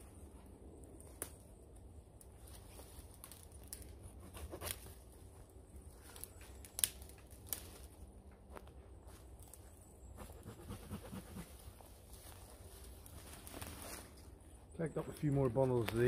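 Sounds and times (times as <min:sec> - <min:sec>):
dry twigs snapping: 0:00.9 - 0:01.5, 0:02.1 - 0:04.0, 0:05.9 - 0:08.7.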